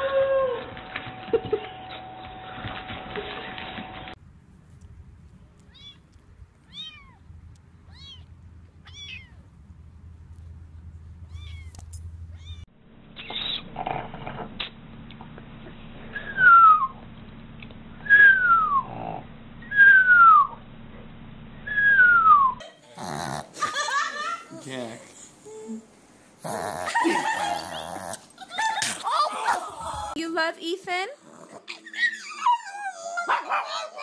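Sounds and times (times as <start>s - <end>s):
faint high animal cries: 5.7s - 6.1s, 6.7s - 7.2s, 7.9s - 9.4s, 11.3s - 11.8s, 12.4s - 13.6s.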